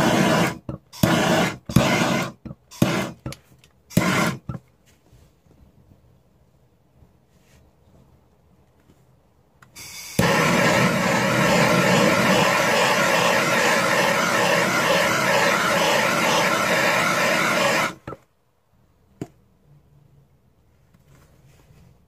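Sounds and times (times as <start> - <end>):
heat gun blowing: 0.0 - 4.6, 9.8 - 18.2.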